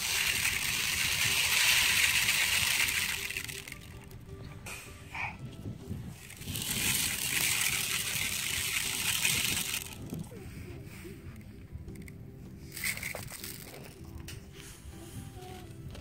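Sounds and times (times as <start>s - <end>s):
sand pouring hiss: 0.0s - 4.1s, 6.2s - 10.2s.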